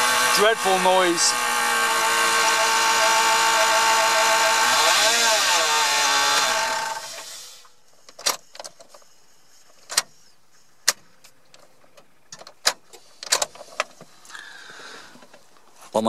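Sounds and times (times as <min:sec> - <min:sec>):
engine switching off: 0:00.0 - 0:07.7.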